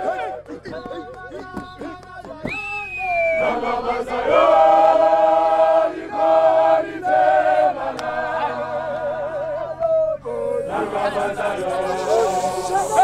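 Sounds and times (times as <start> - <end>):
group singing a cappella: 3.2 - 13.0.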